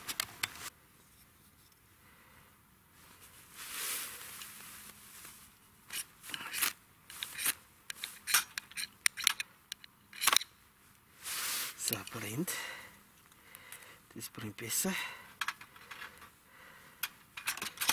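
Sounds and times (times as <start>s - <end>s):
soft rustle: 2.9s - 8.3s, 10.8s - 12.4s.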